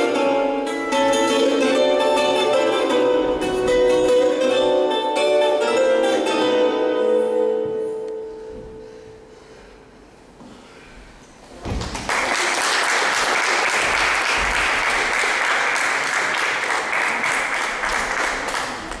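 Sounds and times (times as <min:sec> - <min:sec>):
audience applauding: 0:11.8 - 0:19.0.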